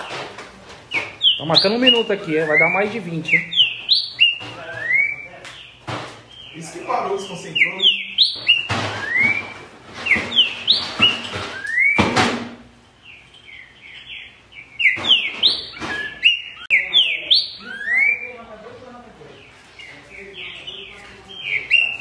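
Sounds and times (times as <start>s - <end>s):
bird singing whistled phrases: 0.9s - 5.7s, 7.2s - 12.1s, 13.5s - 18.4s, 21.4s - 22.0s.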